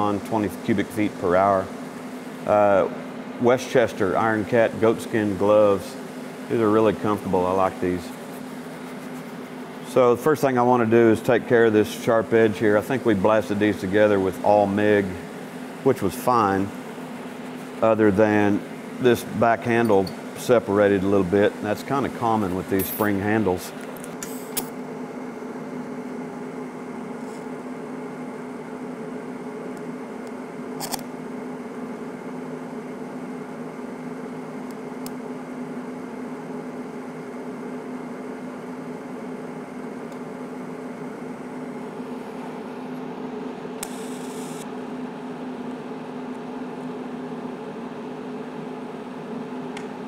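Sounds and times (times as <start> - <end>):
welding arc humming: 0.0 - 24.8, 43.8 - 44.7.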